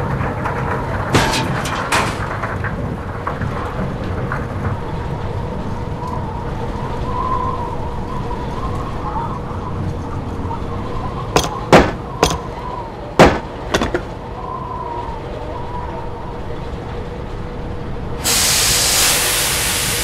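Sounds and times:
diesel engine rumble: 0:07.7 - 0:20.0
hydraulic hose spraying hiss: 0:18.2 - 0:20.0.

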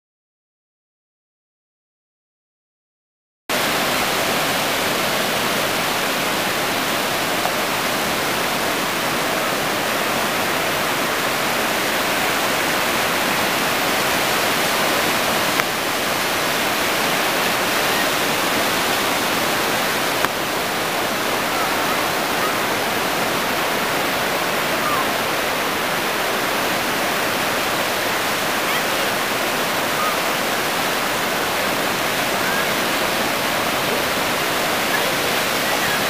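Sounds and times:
ocean surf breaking: 0:03.5 - 0:36.0.

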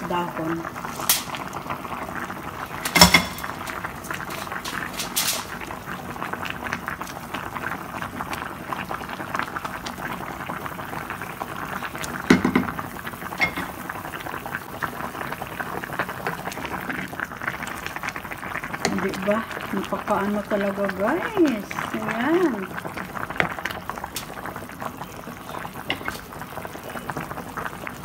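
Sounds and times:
soup bubbling: 0:00.0 - 0:28.0
utensils knocking against pot: 0:02.8 - 0:03.6, 0:13.4 - 0:13.8, 0:25.9 - 0:26.2.

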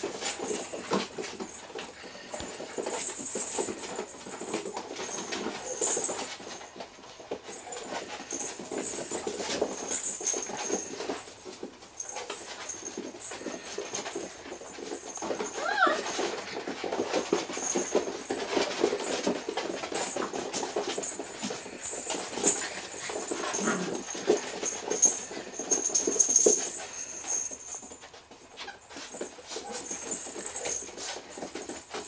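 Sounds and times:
paws scrabbling on vinyl floor: 0:00.0 - 0:32.0
puppies scuffling: 0:00.0 - 0:32.0
puppy whining: 0:12.0 - 0:31.8.

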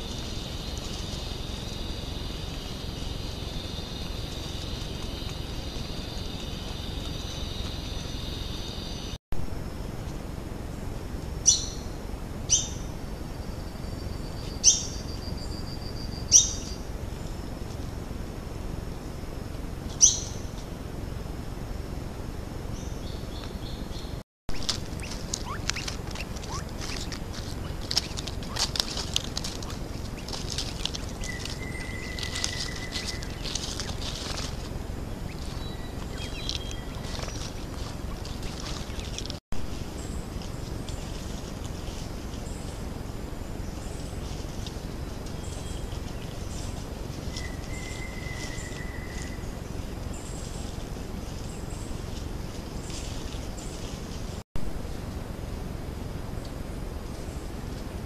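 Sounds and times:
constant low hiss: 0:00.0 - 0:58.0
high-pitched animal calls: 0:24.6 - 0:34.6.

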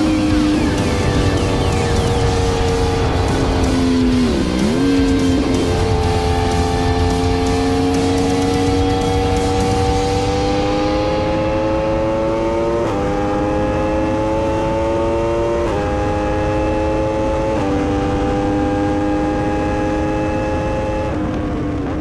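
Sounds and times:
wind rush: 0:00.0 - 0:07.1
motorcycle engine at full throttle: 0:00.0 - 0:22.0.

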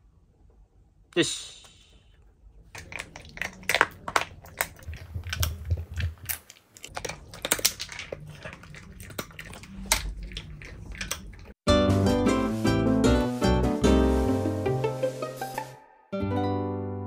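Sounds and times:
dog chewing hard cookie: 0:02.7 - 0:11.6.

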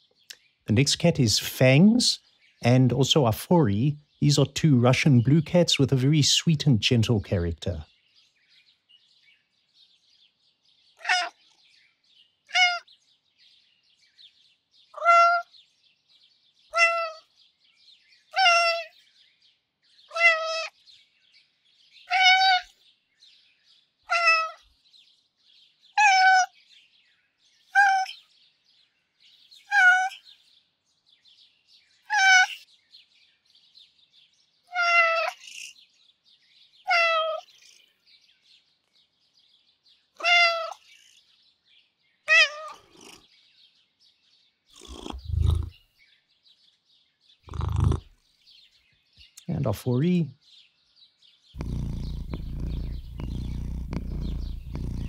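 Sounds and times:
cat meowing: 0:11.0 - 0:11.4, 0:12.5 - 0:12.8, 0:15.0 - 0:15.4, 0:16.7 - 0:17.2, 0:18.4 - 0:18.9, 0:20.1 - 0:20.7, 0:22.1 - 0:22.7, 0:24.1 - 0:24.6, 0:26.0 - 0:26.5, 0:29.7 - 0:30.2, 0:32.1 - 0:32.6, 0:34.7 - 0:35.4, 0:36.9 - 0:37.5, 0:40.2 - 0:40.8, 0:42.3 - 0:43.2, 0:44.8 - 0:45.7, 0:51.6 - 0:55.0.

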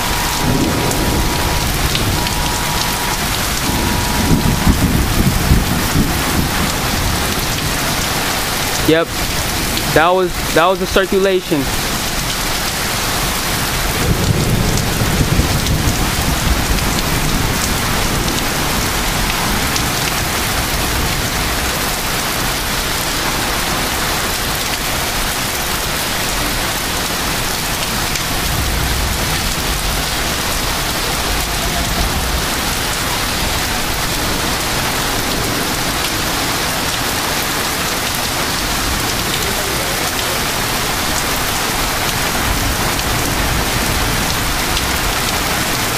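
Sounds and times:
thunder rumble: 0:00.0 - 0:10.5, 0:11.7 - 0:39.6
heavy rain pouring: 0:00.0 - 0:45.9
wind: 0:00.0 - 0:45.9.

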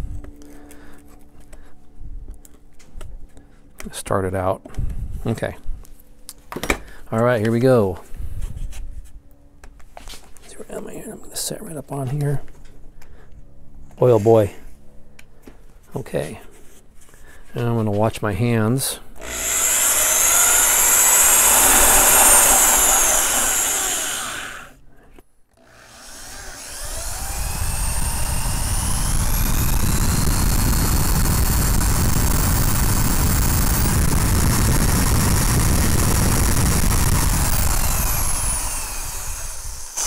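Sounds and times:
power drill cutting plywood: 0:19.2 - 0:24.8, 0:25.6 - 0:40.0.

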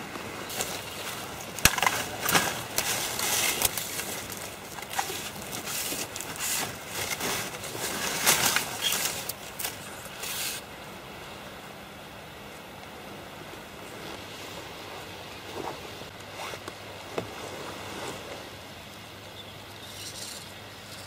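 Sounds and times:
clothing and gear rustling: 0:00.0 - 0:10.6, 0:13.5 - 0:18.6.

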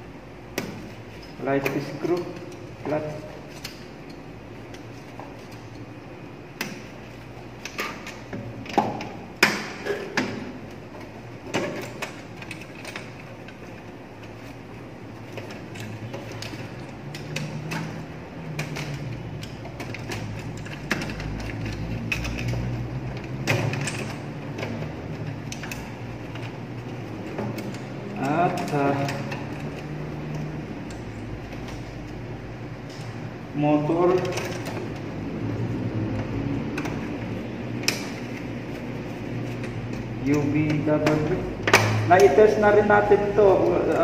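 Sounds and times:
screwdriver and plastic parts clicking: 0:15.3 - 0:32.2.

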